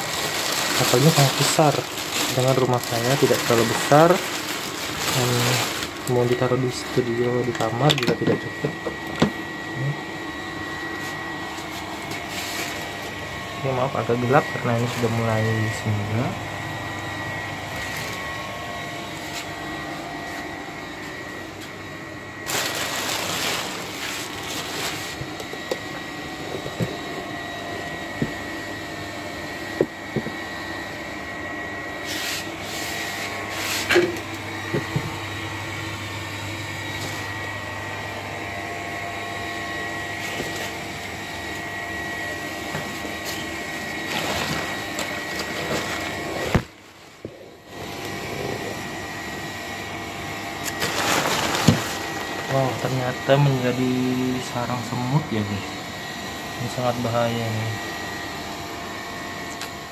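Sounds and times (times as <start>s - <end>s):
newspaper and plastic rustling: 0.0s - 9.4s, 10.9s - 13.2s, 17.7s - 18.5s, 22.4s - 27.1s, 42.7s - 47.2s, 50.6s - 53.1s
machine hum with high whine: 0.0s - 59.9s.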